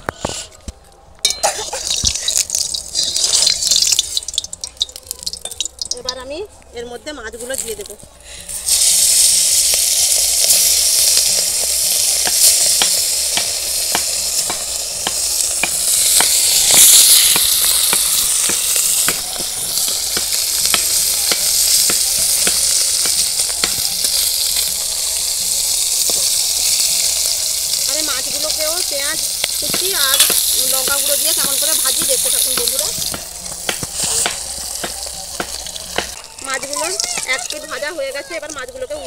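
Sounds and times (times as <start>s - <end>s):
fish sizzling in hot oil: 1.4s - 6.4s, 7.3s - 39.0s
oil spattering pops: 29.4s - 37.7s.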